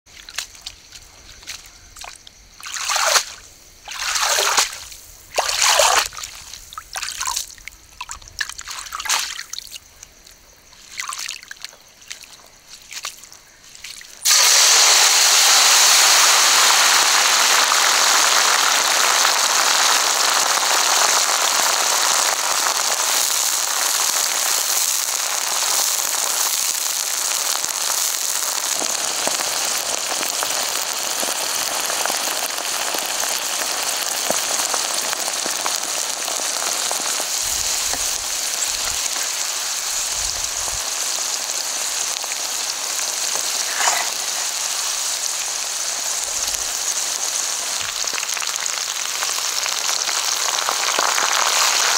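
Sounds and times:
basket splashing in water: 0:02.0 - 0:09.8
deep-frying sizzle: 0:13.6 - 0:51.9.

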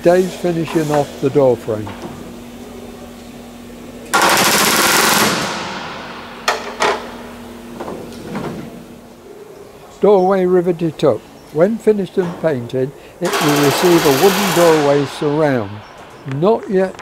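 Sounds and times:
pneumatic rivet gun hammering: 0:04.1 - 0:07.2, 0:13.2 - 0:16.2.

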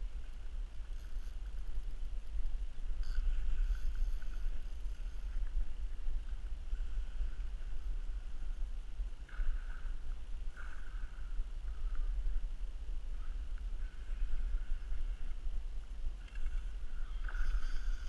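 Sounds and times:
wind rumbling on microphone: 0:00.0 - 0:18.0
fishing reel whirring: 0:03.0 - 0:05.7, 0:16.3 - 0:18.0.

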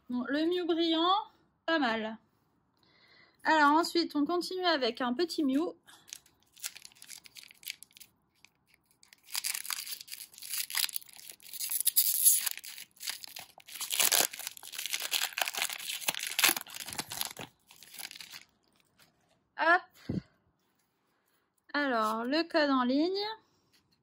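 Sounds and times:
foil wrapper tearing and crinkling: 0:06.1 - 0:18.6.

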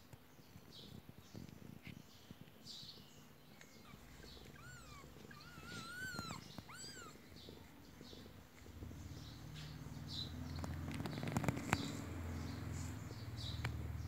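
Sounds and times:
kittens mewing: 0:03.6 - 0:09.9.

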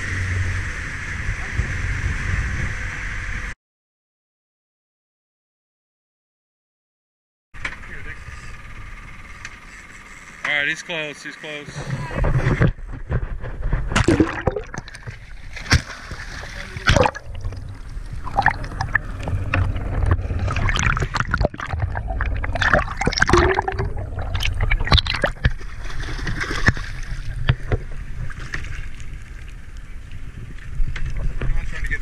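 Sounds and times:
low rumble: 0:00.0 - 0:03.6, 0:11.8 - 0:32.0
water sloshing and splashing: 0:12.5 - 0:31.9.

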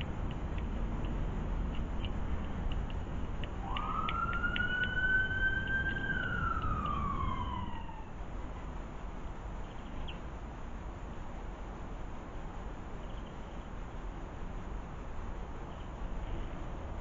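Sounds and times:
emergency vehicle siren wailing: 0:03.6 - 0:08.4.

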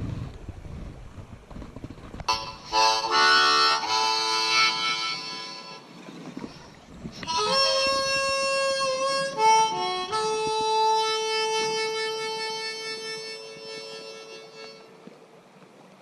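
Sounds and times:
harmonica chords: 0:02.3 - 0:05.9, 0:07.2 - 0:15.0.

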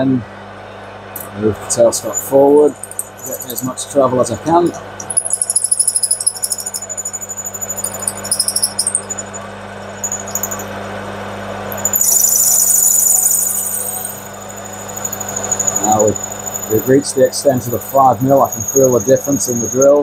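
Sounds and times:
drill squealing cutting brass: 0:05.1 - 0:09.4, 0:11.8 - 0:20.0.

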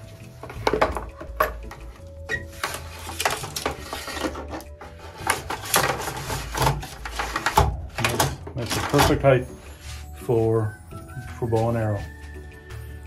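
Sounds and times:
arrows rattling in plastic pipe: 0:02.4 - 0:09.3.

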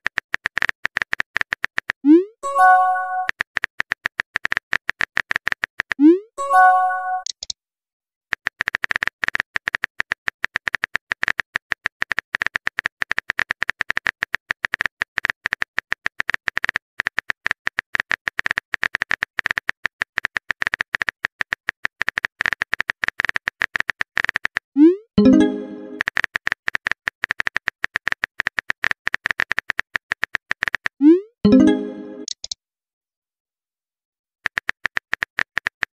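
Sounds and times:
phone keyboard typing clicks: 0:02.6 - 0:06.0, 0:07.2 - 0:07.5, 0:25.2 - 0:32.6, 0:34.5 - 0:35.9.

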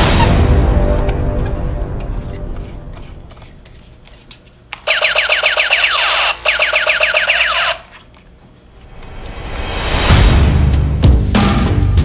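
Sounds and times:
toy gun rapid falling beeps: 0:04.8 - 0:07.9.

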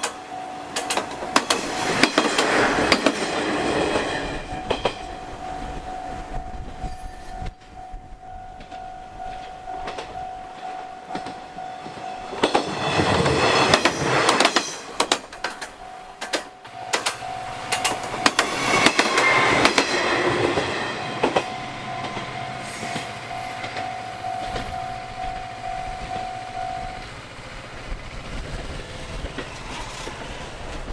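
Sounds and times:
train wheels clacking over rail joints: 0:00.0 - 0:05.2, 0:08.6 - 0:26.3, 0:27.0 - 0:30.9
crossing warning bell ringing: 0:00.0 - 0:28.0.

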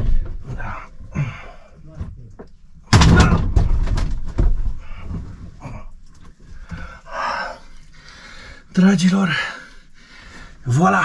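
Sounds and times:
handling rustles and knocks: 0:00.0 - 0:07.0.

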